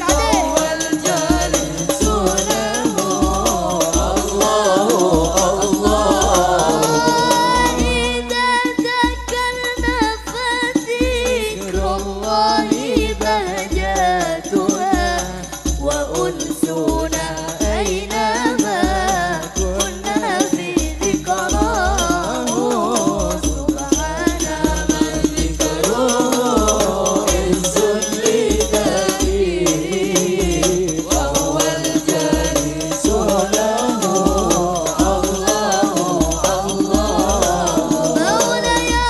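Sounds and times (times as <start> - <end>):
deep drum beat: 0.0 - 10.2, 16.9 - 39.0
person singing devotional song: 0.0 - 39.0
rattling hand percussion: 0.0 - 39.0.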